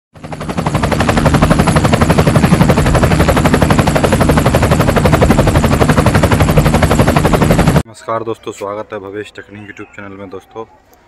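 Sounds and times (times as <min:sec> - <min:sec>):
helicopter rotor blades beating: 0:00.2 - 0:07.8.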